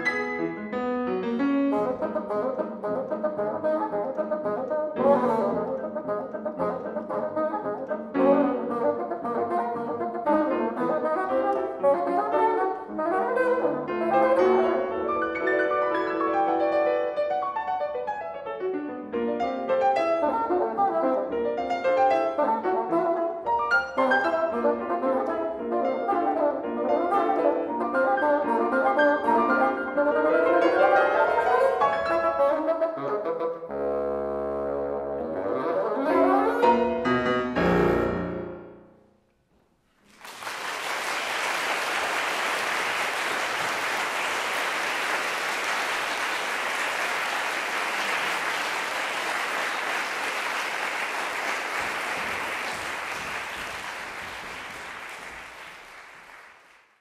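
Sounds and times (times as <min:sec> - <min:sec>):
piano: 0:00.0 - 0:56.8
bassoon: 0:01.4 - 0:15.5, 0:19.6 - 0:38.9
audience applause: 0:40.0 - 0:57.0.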